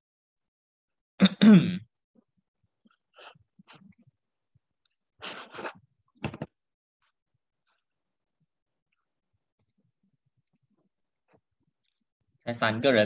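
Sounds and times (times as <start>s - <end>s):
breath and mouth sounds: 5.2s - 6.4s.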